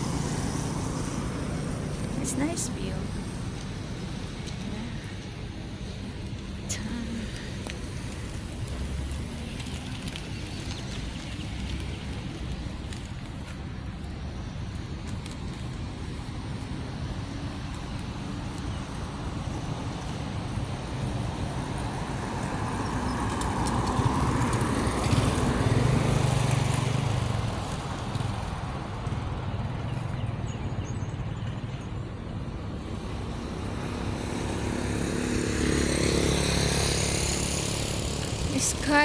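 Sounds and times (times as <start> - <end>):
traffic hum: 0.0 - 39.0
vehicle passing close: 32.8 - 39.0.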